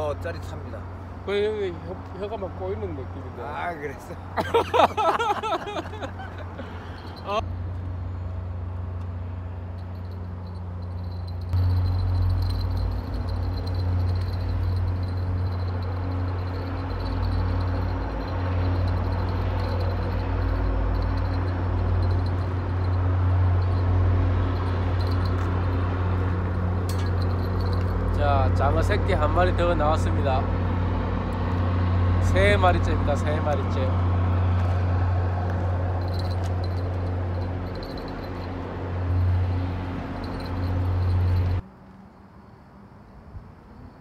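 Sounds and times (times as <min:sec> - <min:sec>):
low-pitched hum: 0:07.0 - 0:28.7.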